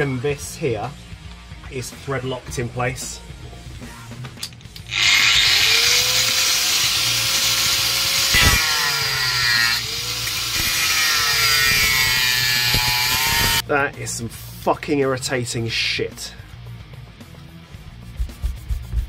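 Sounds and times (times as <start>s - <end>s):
power tool motor whining: 4.9s - 13.6s.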